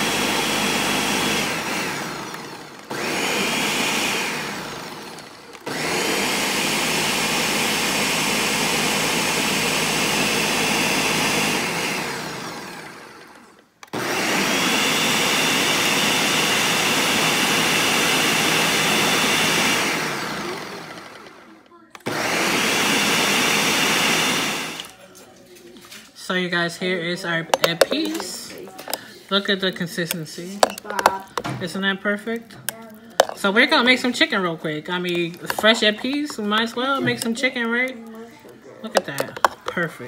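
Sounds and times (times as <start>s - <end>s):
blender motor running: 0.0s - 25.0s, 27.5s - 29.1s, 30.6s - 31.5s, 33.1s - 34.0s, 35.0s - 37.5s, 38.9s - 39.8s.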